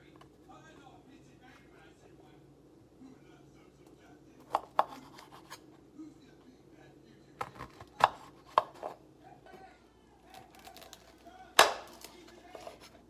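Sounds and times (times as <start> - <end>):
knife striking cutting board: 11.6 - 12.7.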